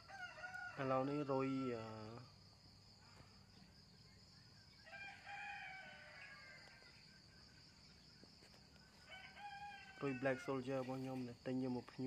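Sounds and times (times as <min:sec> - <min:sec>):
rooster crowing: 0:00.0 - 0:01.9, 0:04.8 - 0:07.1, 0:09.0 - 0:10.8.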